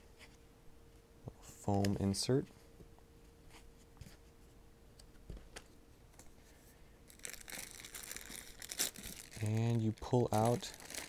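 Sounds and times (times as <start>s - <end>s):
plastic bag crinkling: 7.1s - 11.0s.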